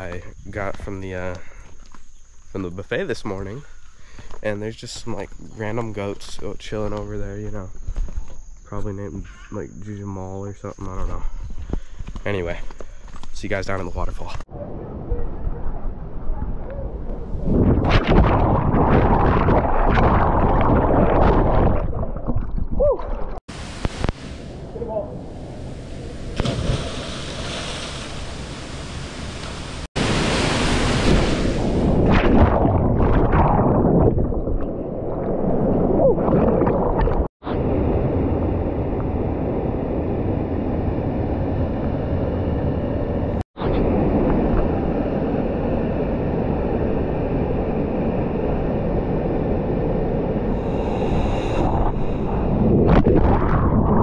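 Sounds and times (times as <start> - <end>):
waterfall and stream rushing: 23.5 - 31.9.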